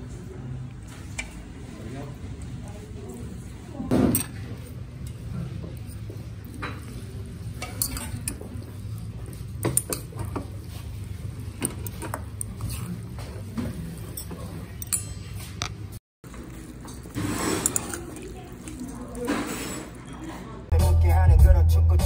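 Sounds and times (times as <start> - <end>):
chopsticks clinking against metal bowl: 5.8 - 10.7, 14.0 - 15.8, 16.6 - 20.2.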